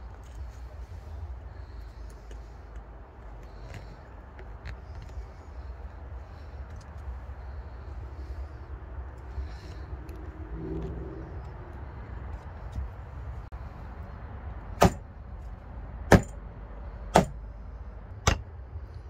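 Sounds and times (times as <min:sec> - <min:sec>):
hammer striking metal punch: 0:14.8 - 0:15.0, 0:16.1 - 0:16.4, 0:17.1 - 0:17.4, 0:18.2 - 0:18.5.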